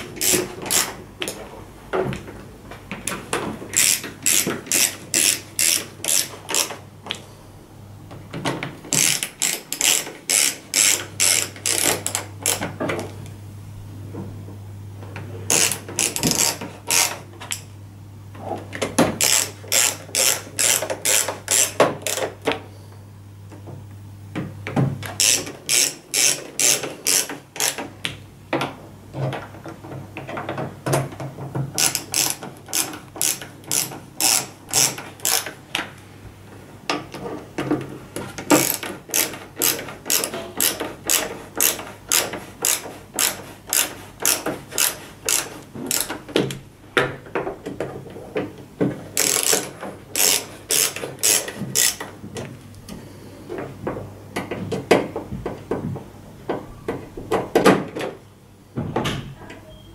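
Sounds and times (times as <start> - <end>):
ratcheting screwdriver clicking: 3.8 - 6.8, 8.9 - 12.7, 15.5 - 17.6, 19.2 - 22.3, 25.2 - 27.8, 31.8 - 35.6, 38.6 - 46.2, 49.2 - 52.1.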